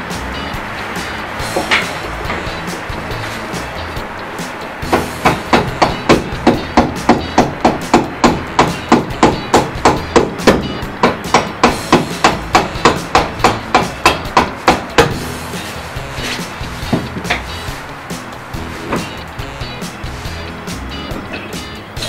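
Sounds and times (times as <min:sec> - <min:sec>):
hammer striking wheel: 0:01.4 - 0:02.6, 0:04.8 - 0:15.3.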